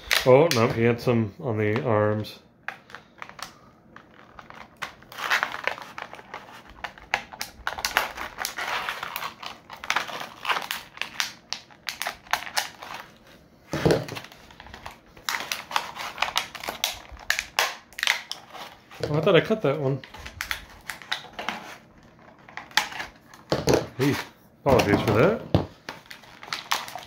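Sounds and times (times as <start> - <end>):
plastic packaging rustling: 2.8 - 27.0.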